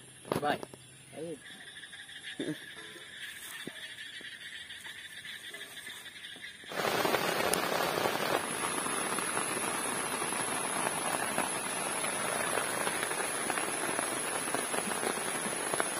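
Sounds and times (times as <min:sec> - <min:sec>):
rain falling on grass and leaves: 0:06.7 - 0:15.9.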